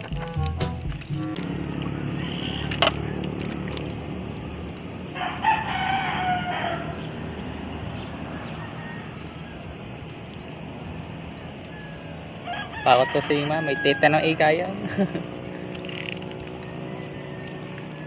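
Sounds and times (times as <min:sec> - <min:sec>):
rooster crowing: 0:01.6 - 0:03.2, 0:05.1 - 0:09.9, 0:11.7 - 0:14.6, 0:16.6 - 0:18.0.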